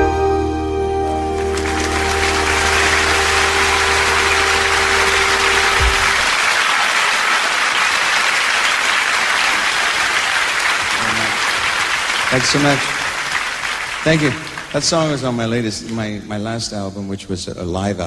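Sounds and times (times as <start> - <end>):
band holding last chord: 0.0 - 6.4
audience applauding: 1.1 - 15.8.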